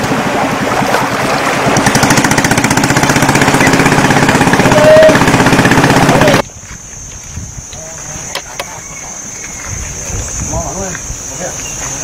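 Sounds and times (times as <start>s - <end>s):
boat engine running: 0.0s - 6.4s.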